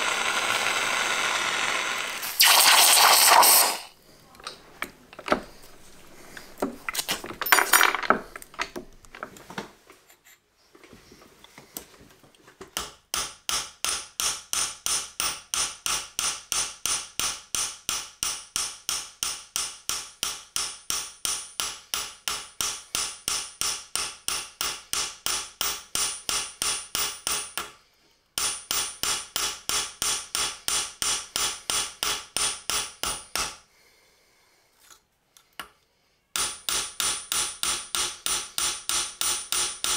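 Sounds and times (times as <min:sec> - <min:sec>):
small hammer on metal anvil: 0:12.8 - 0:27.8, 0:28.4 - 0:33.6, 0:36.4 - 0:39.9.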